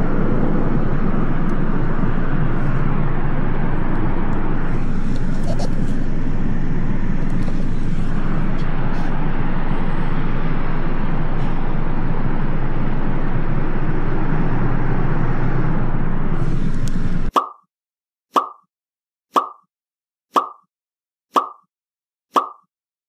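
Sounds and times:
road traffic noise: 0.0s - 17.3s.

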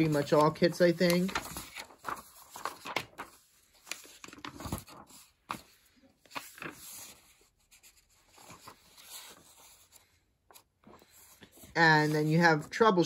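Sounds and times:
paper pages rustling: 0.0s - 12.7s.

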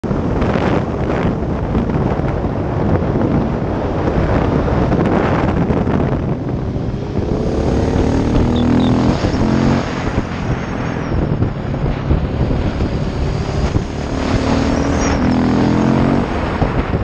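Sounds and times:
wind noise on microphone: 0.0s - 17.0s
motorcycle engine running: 5.0s - 17.0s.

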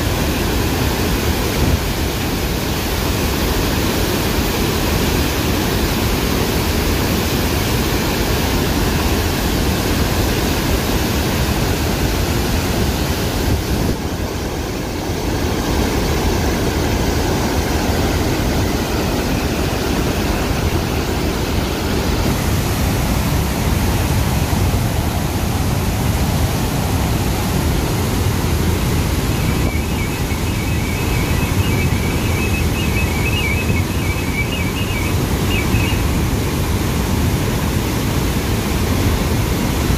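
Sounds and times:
water rushing down spillway: 0.0s - 39.9s.

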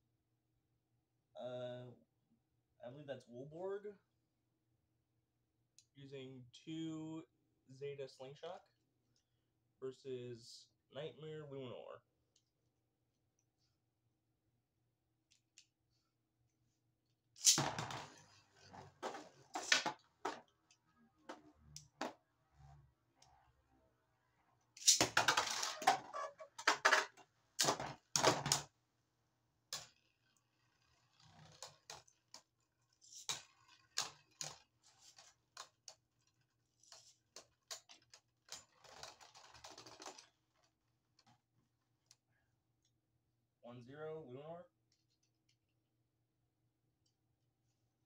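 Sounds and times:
spinning tops clacking together: 24.8s - 25.7s.

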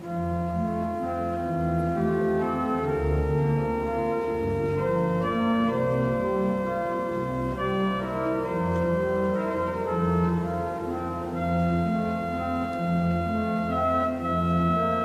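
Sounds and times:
organ playing sustained chords: 0.0s - 15.0s.

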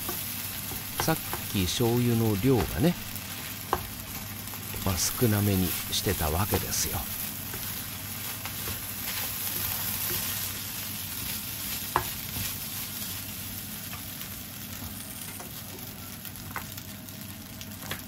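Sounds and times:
rice sizzling in a frying pan: 0.0s - 18.0s
wooden spatula scraping a pan: 6.8s - 13.2s.

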